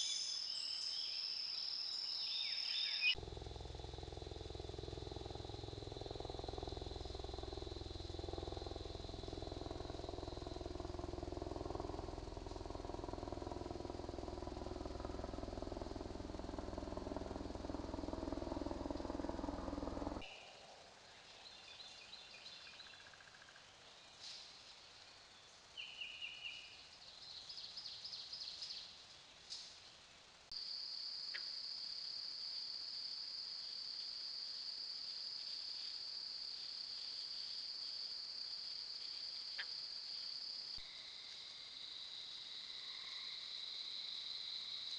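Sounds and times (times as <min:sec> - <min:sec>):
pulsed insect chirps: 0:00.0 - 0:20.8
cricket trill: 0:00.0 - 0:23.6, 0:30.5 - 0:44.9
high insect drone: 0:00.0 - 0:29.0, 0:30.5 - 0:44.9
low rumble: 0:03.2 - 0:20.3.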